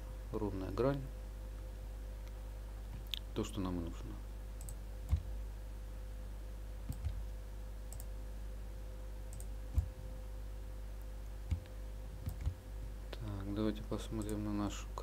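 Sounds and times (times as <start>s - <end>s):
low electrical hum: 0.0s - 15.0s
computer mouse clicks: 4.6s - 5.3s, 6.9s - 7.2s, 7.9s - 8.1s, 9.3s - 10.0s, 11.5s - 12.6s, 14.2s - 14.4s.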